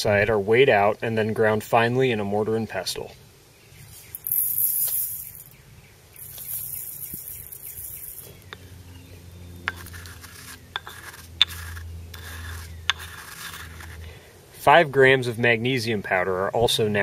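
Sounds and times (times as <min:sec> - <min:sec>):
granules pouring into steel can: 0:04.2 - 0:05.5, 0:06.2 - 0:08.3
pestle grinding in stone mortar: 0:09.7 - 0:14.0.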